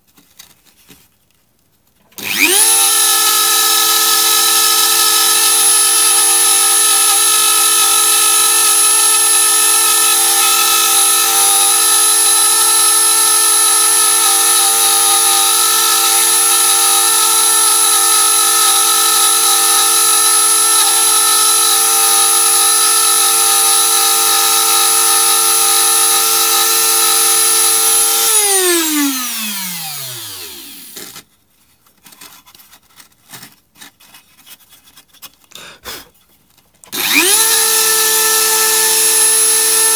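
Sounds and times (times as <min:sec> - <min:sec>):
motor spinning down: 0:02.2 - 0:06.0, 0:24.4 - 0:31.1, 0:37.0 - 0:39.9
rotary tool high whine: 0:02.2 - 0:31.2, 0:36.9 - 0:39.9.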